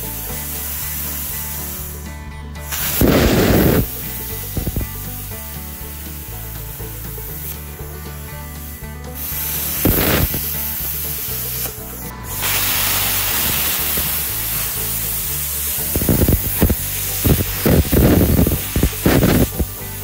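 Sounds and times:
plasma cutter torch hissing: 0:00.0 - 0:02.0, 0:02.6 - 0:06.4, 0:09.2 - 0:20.0
background music with bass line: 0:00.0 - 0:20.0.

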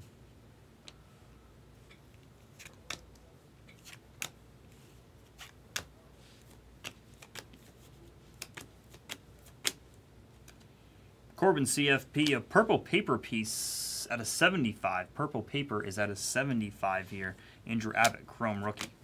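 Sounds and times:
cards flicked off a stack: 0:08.4 - 0:09.8.

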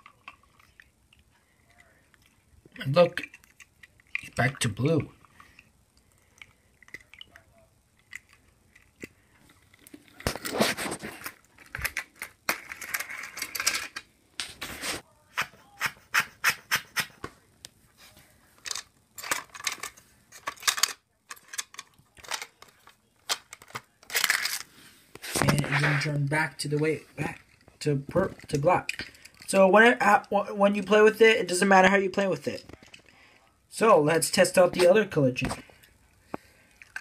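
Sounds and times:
plastic toy pieces clattering: 0:08.0 - 0:14.1, 0:18.6 - 0:24.7, 0:27.2 - 0:30.3, 0:36.8 - 0:37.0.

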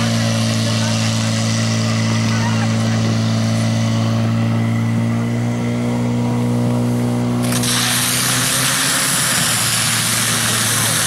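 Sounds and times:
pump engine running at high speed: 0:00.0 - 0:11.0
water jets hissing from hose: 0:07.4 - 0:11.0.

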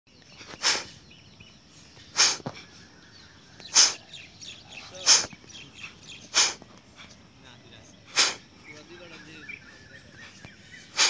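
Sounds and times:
forceful exhalations through nose: 0:00.4 - 0:01.0, 0:02.0 - 0:02.8, 0:03.6 - 0:04.1, 0:04.8 - 0:07.2, 0:08.0 - 0:08.5, 0:10.2 - 0:11.0.

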